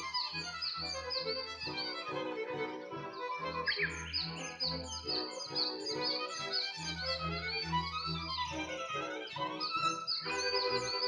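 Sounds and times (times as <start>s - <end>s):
high bird chirps: 3.5s - 7.3s, 9.4s - 11.0s.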